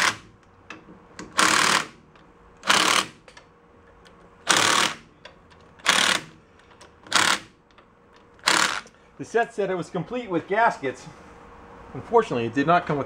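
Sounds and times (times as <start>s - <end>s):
cordless driver running: 1.4s - 1.9s, 2.6s - 3.1s, 4.5s - 5.0s, 5.8s - 6.3s, 7.1s - 7.5s, 8.4s - 8.9s.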